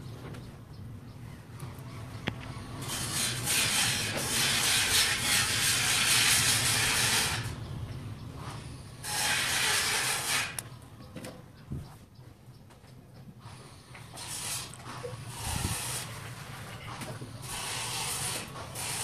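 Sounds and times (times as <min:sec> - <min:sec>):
soldering iron sizzling: 0:14.2 - 0:16.2, 0:17.4 - 0:19.0.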